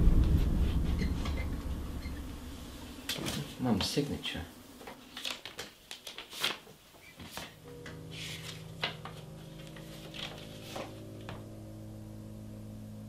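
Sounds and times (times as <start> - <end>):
low held music chord: 0.0 - 4.8, 7.7 - 13.0
paper rustling and crinkling: 4.8 - 11.4.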